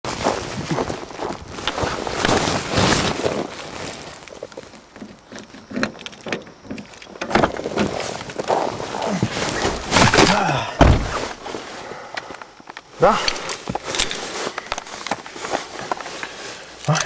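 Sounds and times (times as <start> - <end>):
footsteps crunching in snow: 0.0 - 5.0, 7.9 - 10.2, 13.5 - 16.8
jacket rustling on microphone: 0.0 - 5.3, 7.6 - 10.2, 11.0 - 11.9, 13.4 - 16.9.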